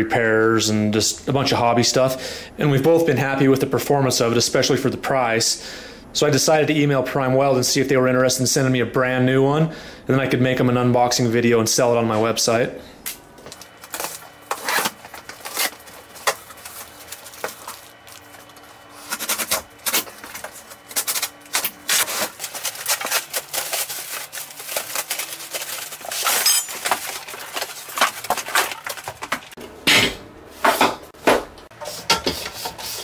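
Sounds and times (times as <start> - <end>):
cardboard box being unpacked: 13.7 - 29.5.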